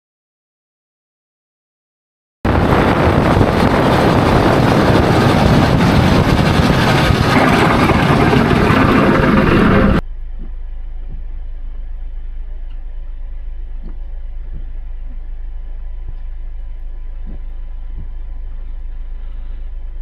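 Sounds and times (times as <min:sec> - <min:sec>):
quiet low rumble: 0:02.5 - 0:20.0
wind noise on microphone: 0:02.5 - 0:20.0
snowplow truck engine passing: 0:02.6 - 0:10.0.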